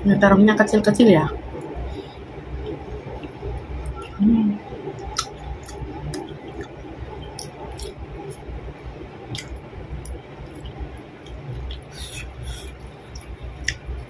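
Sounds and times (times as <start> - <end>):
person humming: 4.2 - 4.6
mouth clicks and smacks: 5.0 - 8.5, 9.3 - 14.0
wet chewing: 5.0 - 8.5, 9.3 - 14.0.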